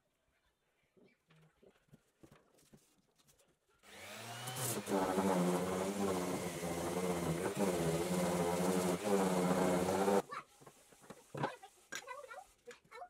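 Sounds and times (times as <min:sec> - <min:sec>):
power tool motor whining: 0:03.9 - 0:10.2.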